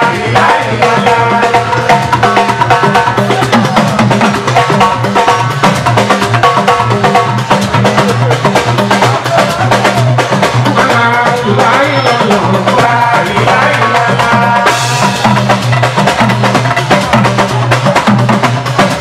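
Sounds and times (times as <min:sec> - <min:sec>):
loud dance music: 0:00.0 - 0:19.0.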